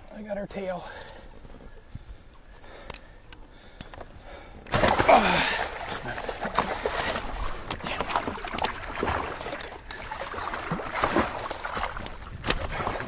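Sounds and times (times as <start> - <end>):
fish thrashing in net: 4.7 - 7.3
water splashing against boat: 4.7 - 13.0.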